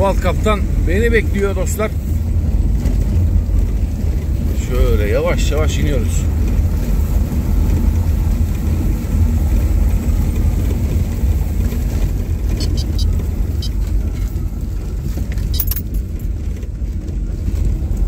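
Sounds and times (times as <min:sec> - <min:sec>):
car engine and road rumble: 0:00.0 - 0:18.0
light clicks and rattles: 0:15.1 - 0:17.7.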